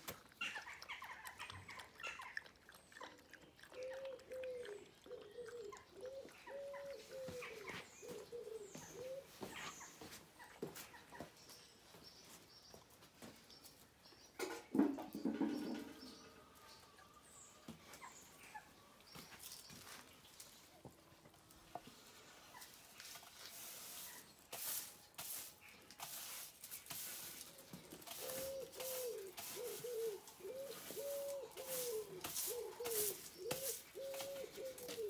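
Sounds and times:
broom sweeping over stones: 22.7s - 35.0s.

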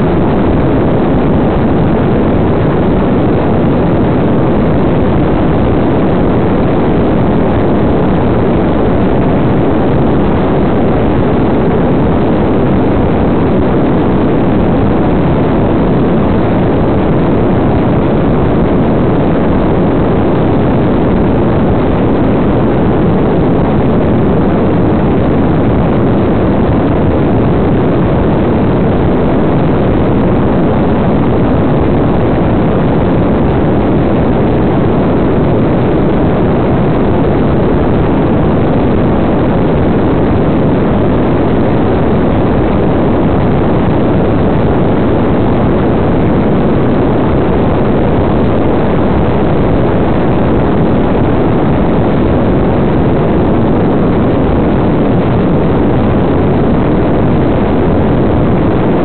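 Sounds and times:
airflow rush: 0.0s - 59.0s.

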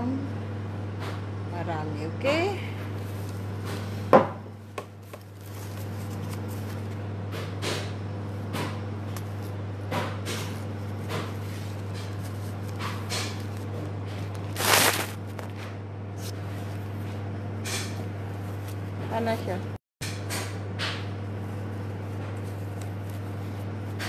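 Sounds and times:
wrapping paper rustling and crinkling: 5.0s - 7.0s, 11.4s - 15.6s.

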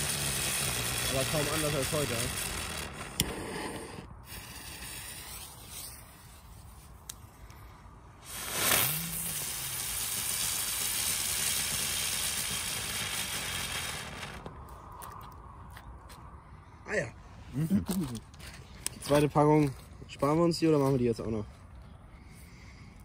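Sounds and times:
rushing burst: 0.0s - 5.8s, 8.2s - 14.4s
ground fireworks hissing and fizzing: 0.0s - 14.6s.

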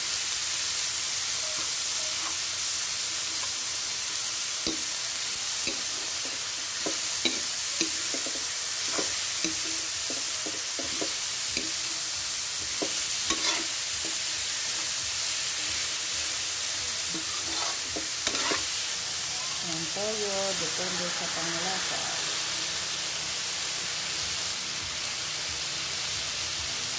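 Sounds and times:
food sizzling in oil: 0.0s - 26.9s
metal spatula scraping wok: 5.6s - 15.0s, 17.1s - 19.0s.

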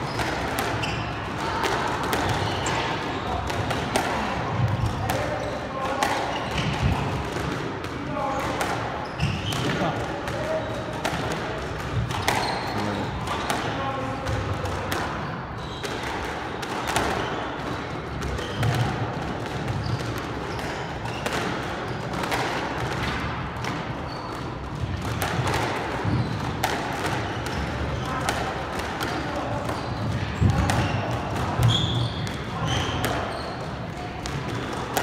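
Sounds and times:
shoes squeaking on wooden floor: 9.0s - 9.9s, 12.2s - 13.2s.

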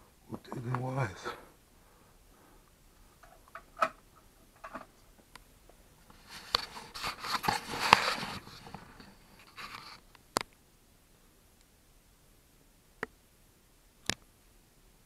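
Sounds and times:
board rustling and scraping: 6.0s - 10.0s.

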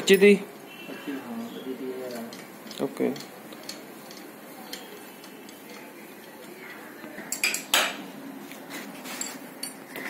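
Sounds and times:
metal tools clinking on engine: 9.1s - 10.0s.

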